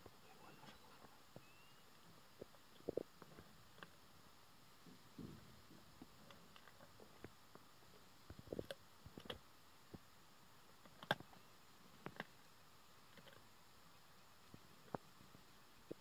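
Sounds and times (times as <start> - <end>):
lion crunching bone: 10.8 - 11.4, 13.1 - 13.5.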